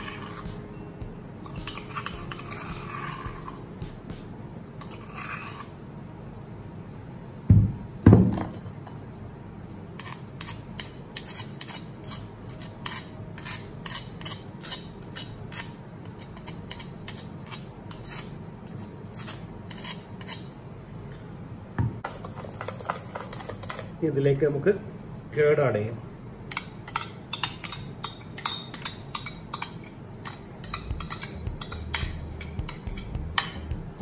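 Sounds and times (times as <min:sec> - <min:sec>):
clicks and scrapes on steel: 0:10.0 - 0:20.6, 0:26.5 - 0:33.7
stone pestle knocking on steel bowl: 0:30.8 - 0:33.9.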